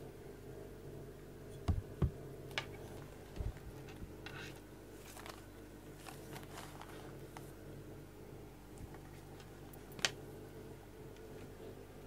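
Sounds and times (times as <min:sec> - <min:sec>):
rustling of fur and hand: 0:02.8 - 0:07.6.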